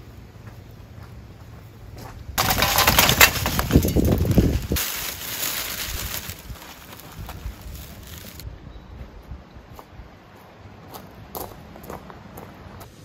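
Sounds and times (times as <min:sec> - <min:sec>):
burning paper hissing crackle: 0:02.4 - 0:08.4
charcoal fire crackling: 0:02.4 - 0:08.4.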